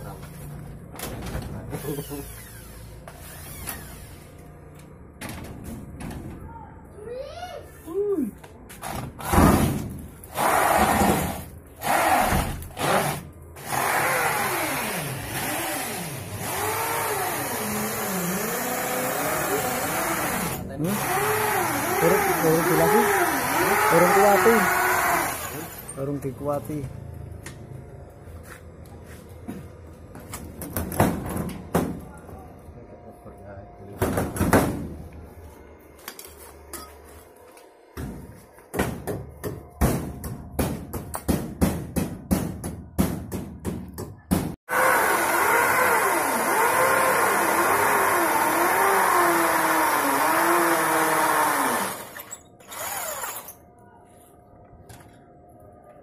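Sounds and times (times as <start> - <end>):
garage door squeaking: 1.0 - 4.4, 52.1 - 53.6.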